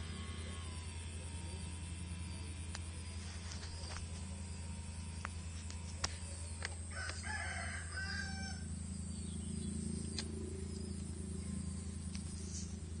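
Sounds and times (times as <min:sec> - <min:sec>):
steady low hum: 0:00.0 - 0:13.0
rooster crowing: 0:06.9 - 0:08.7.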